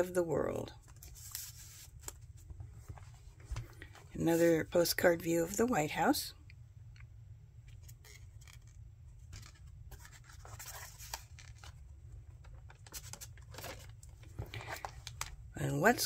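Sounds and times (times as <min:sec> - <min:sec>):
page turning: 0:00.8 - 0:03.9, 0:07.8 - 0:11.8, 0:12.4 - 0:15.3
paper rustling and scraping: 0:00.8 - 0:04.6, 0:07.8 - 0:11.8, 0:12.5 - 0:15.3.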